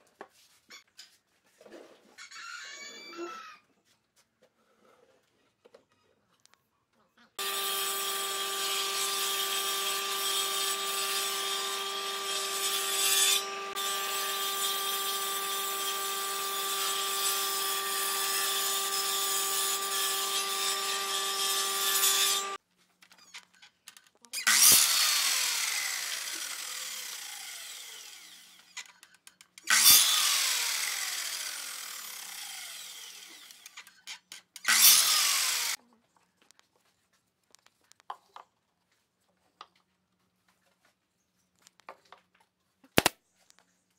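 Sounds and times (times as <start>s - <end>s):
miter saw cutting wood: 7.4s - 22.6s, 24.4s - 28.8s, 29.6s - 34.0s, 34.6s - 35.8s
table saw cutting wood: 7.4s - 22.6s, 24.4s - 28.9s, 29.6s - 33.8s, 34.6s - 35.8s.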